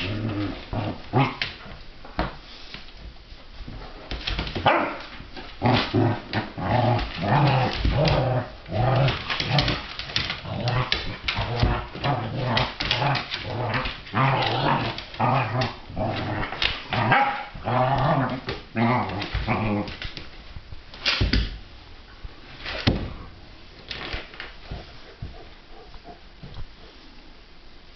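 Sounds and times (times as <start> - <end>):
dogs growling: 5.6 - 20.0.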